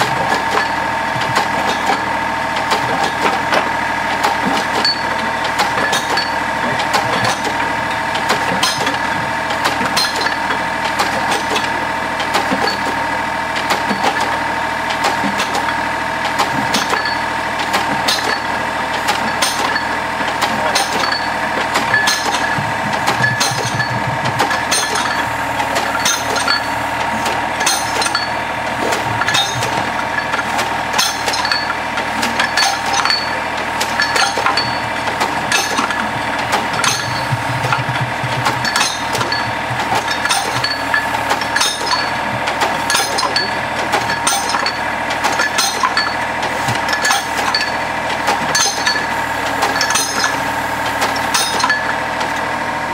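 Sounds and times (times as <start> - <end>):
drilling rig whine: 0.0 - 52.9
metallic percussive knocks: 13.7 - 52.4.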